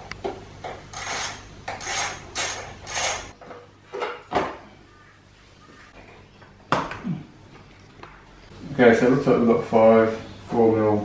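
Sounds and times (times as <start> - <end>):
ratchet clicking: 0.9 - 3.3.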